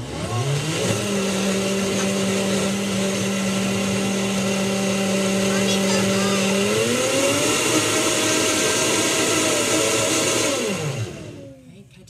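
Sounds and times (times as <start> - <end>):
blender running: 0.0 - 11.6.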